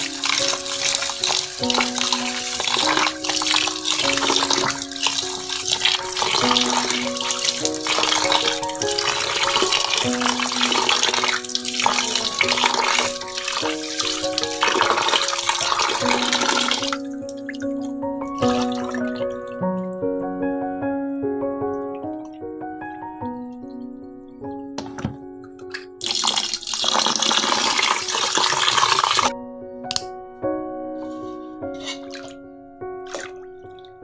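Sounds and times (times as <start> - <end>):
water swishing and splashing: 0.0 - 19.6, 31.8 - 32.4, 33.0 - 34.0
background music with held notes: 0.0 - 28.5, 29.3 - 34.0.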